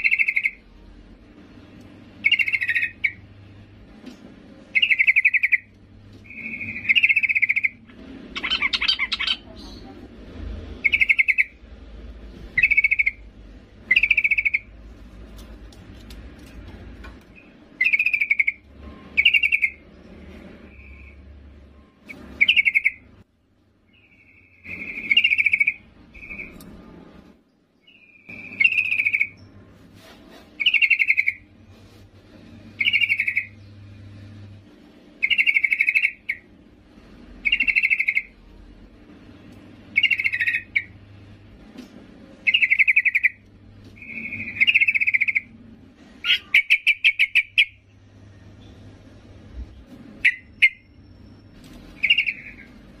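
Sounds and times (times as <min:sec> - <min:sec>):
bird call phrases: 0:00.0 - 0:00.6, 0:02.2 - 0:03.2, 0:04.7 - 0:07.8, 0:12.5 - 0:14.7, 0:35.2 - 0:36.5, 0:39.9 - 0:41.0, 0:42.4 - 0:43.4, 0:46.2 - 0:47.9, 0:50.2 - 0:51.4, 0:52.0 - 0:52.8.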